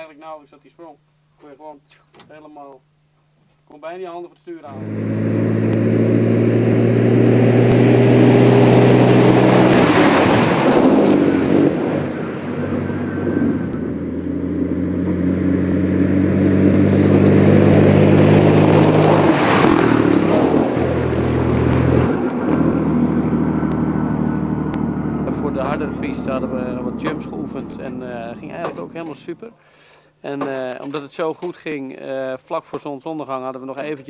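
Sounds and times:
truck diesel engine running hard: 4.7 - 29.2.

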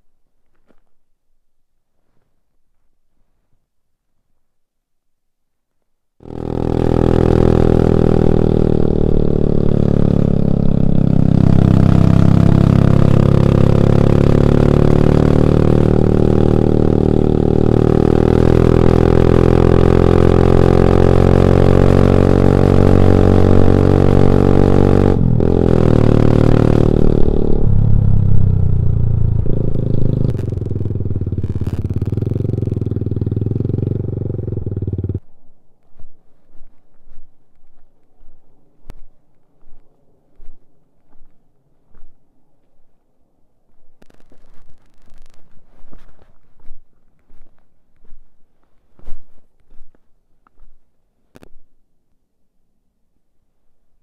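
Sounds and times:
motorcycle engine running: 6.2 - 35.4.

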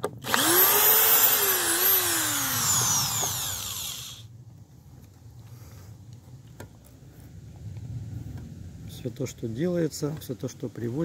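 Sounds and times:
power drill driving a screw: 0.0 - 4.3.

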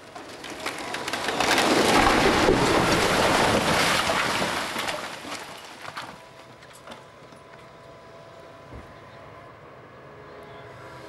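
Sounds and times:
falling concrete and rubble rumble: 0.0 - 7.6.

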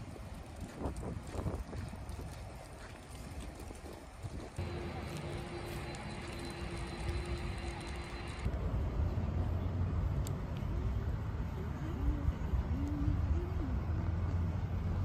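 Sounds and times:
distant jet engines rumbling: 4.6 - 8.5
faint steady hum: 4.6 - 8.5.

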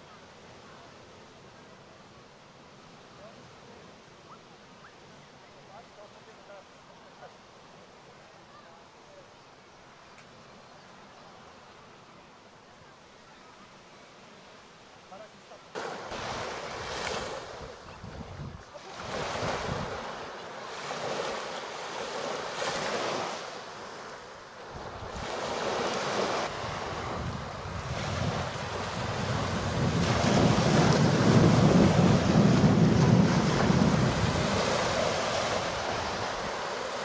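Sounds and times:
sea waves washing on shore: 0.0 - 37.0
wind buffeting microphone: 16.2 - 20.2, 24.7 - 37.0.

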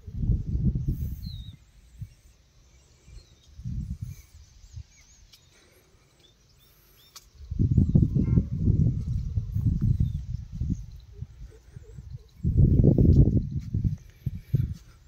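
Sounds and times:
faint bird chirps: 0.4 - 15.0
low rumbles on microphone: 7.5 - 15.0.

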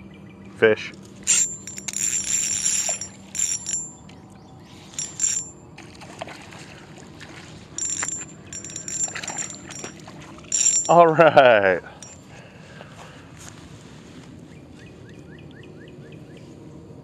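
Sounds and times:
fishing reel whirring: 1.2 - 4.1, 4.9 - 5.6, 7.8 - 9.9, 10.5 - 11.0
fish splashing: 5.8 - 7.8.

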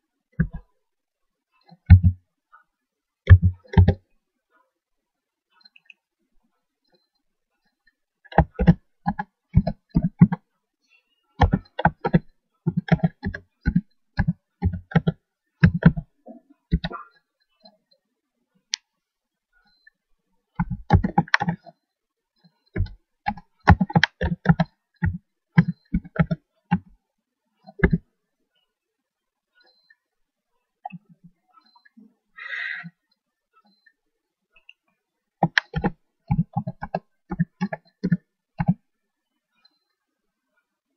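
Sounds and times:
computer keyboard typing: 3.3 - 4.0, 8.3 - 10.4, 11.4 - 16.1, 16.7 - 17.0, 20.6 - 21.7, 22.7 - 26.9, 27.7 - 28.0, 35.4 - 38.8.

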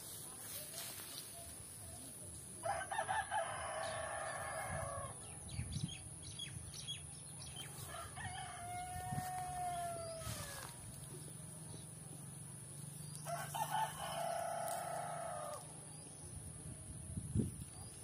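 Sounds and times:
rooster crowing: 2.6 - 5.1, 7.8 - 10.8, 13.2 - 15.7.

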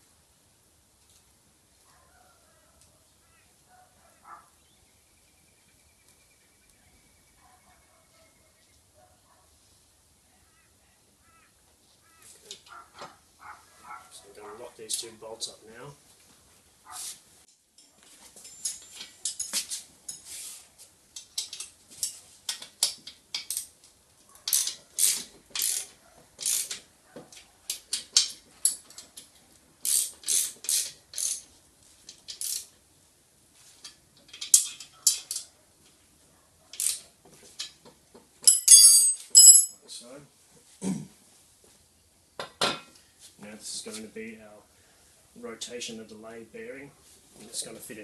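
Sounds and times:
ratchet wrench clicking: 22.5 - 23.7, 24.5 - 26.8, 29.8 - 31.4, 32.2 - 32.7, 36.8 - 37.0
metal clink: 38.4 - 39.8.

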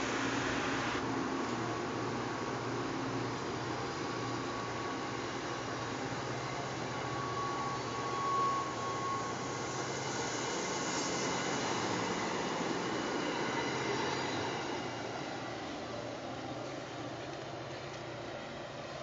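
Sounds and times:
faint thin whine: 4.3 - 19.0.

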